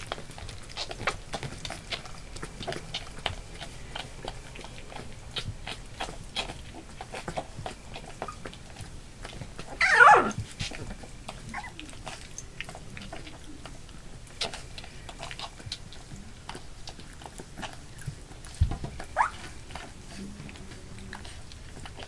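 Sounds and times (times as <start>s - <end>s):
puppy squealing: 9.7s - 10.4s, 11.5s - 11.9s, 19.1s - 19.5s
puppy yelping: 9.7s - 10.4s, 11.5s - 12.3s, 19.0s - 19.8s.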